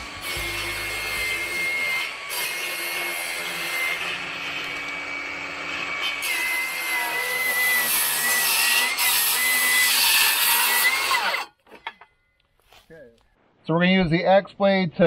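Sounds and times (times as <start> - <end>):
circular saw cutting wood: 0.0 - 11.9.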